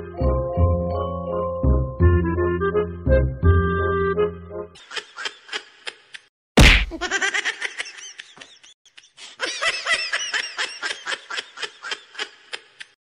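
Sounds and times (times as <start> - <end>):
laugh track giggling: 4.8 - 6.3, 6.9 - 13.0.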